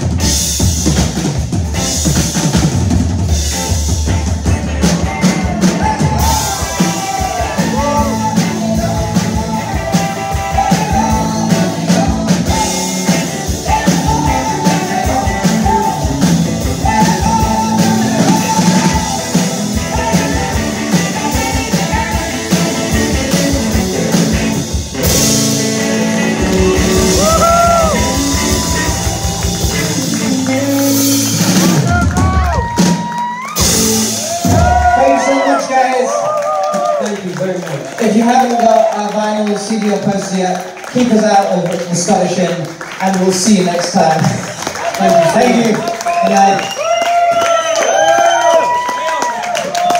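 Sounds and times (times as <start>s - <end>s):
rock band playing: 0.0s - 49.9s
person singing: 4.9s - 24.0s.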